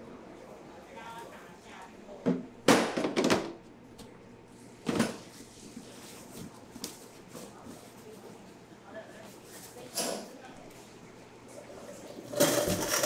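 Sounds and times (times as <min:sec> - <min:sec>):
objects clattering and scraping: 0:11.9 - 0:13.0.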